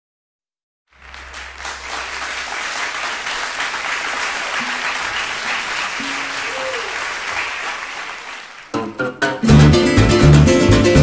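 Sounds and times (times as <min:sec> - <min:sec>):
audience applauding: 0:00.9 - 0:09.0.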